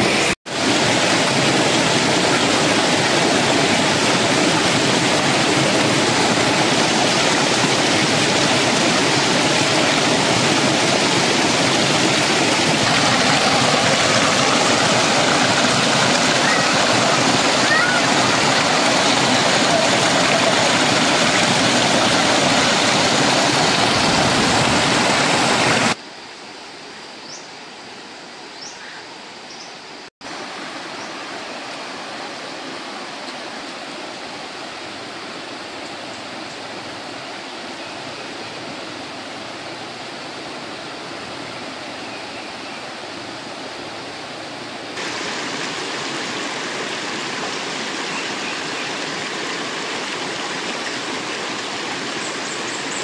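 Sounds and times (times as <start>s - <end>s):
water rushing over boulders: 0.0s - 26.0s, 30.2s - 53.0s.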